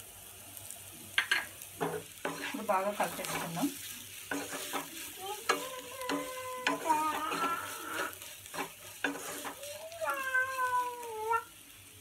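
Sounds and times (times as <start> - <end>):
light sizzle of frying: 0.0 - 12.0
spatula scraping frying pan: 1.2 - 11.5
wavering high-pitched cry: 9.4 - 11.5.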